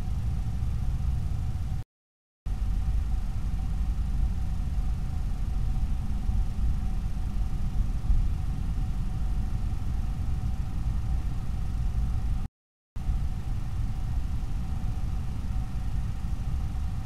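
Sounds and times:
faint steady whine: 0.0 - 1.8, 2.5 - 17.0.

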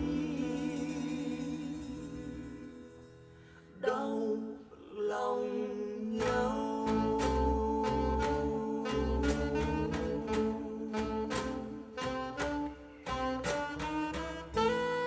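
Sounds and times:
instrumental music through speakers: 6.2 - 15.0
regular drum beat: 6.2 - 15.0.

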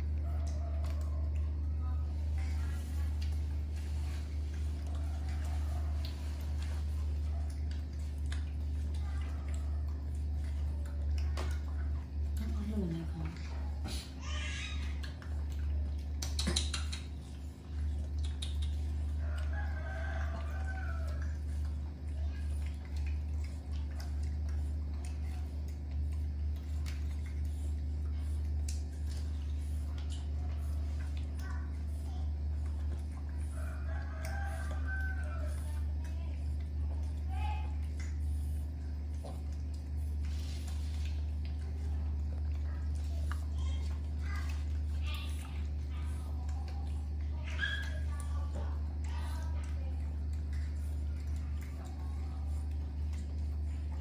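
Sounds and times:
chewing and handling ticks: 0.0 - 54.0
steady low hum: 0.0 - 54.0.

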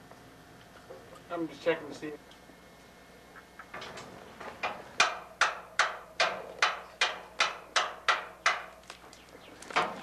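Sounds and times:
sharp ringing knocks: 4.6 - 8.7.

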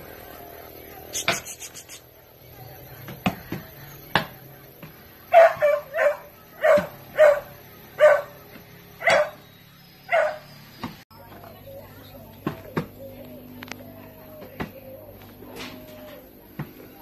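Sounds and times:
dog barking: 5.3 - 8.4, 9.0 - 9.4, 10.1 - 10.5.

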